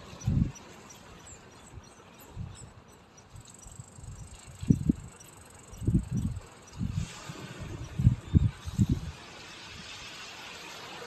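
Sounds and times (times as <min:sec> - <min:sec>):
insects chirping: 0:00.0 - 0:06.8.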